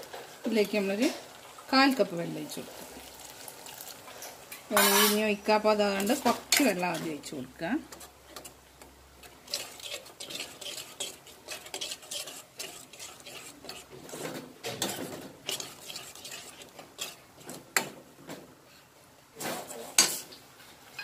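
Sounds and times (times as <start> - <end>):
spoon scraping and clinking in pan: 4.1 - 5.3, 5.9 - 7.1, 9.2 - 18.0.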